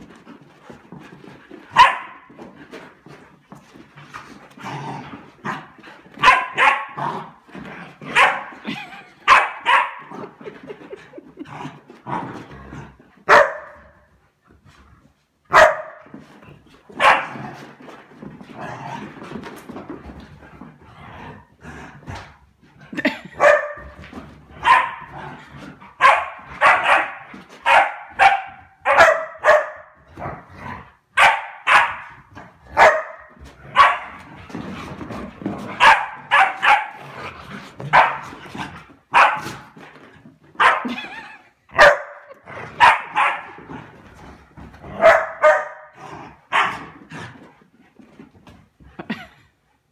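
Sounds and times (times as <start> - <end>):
dog barking: 1.8 - 2.2, 6.2 - 7.0, 8.1 - 8.5, 9.3 - 10.0, 13.3 - 13.8, 15.5 - 16.0, 17.0 - 17.3, 23.4 - 23.8, 24.6 - 25.0, 26.0 - 29.9, 31.2 - 32.1, 32.8 - 34.1, 35.8 - 37.0, 37.9 - 38.2, 39.1 - 39.4, 40.6 - 40.9, 41.8 - 43.5, 45.0 - 45.9, 46.5 - 46.8.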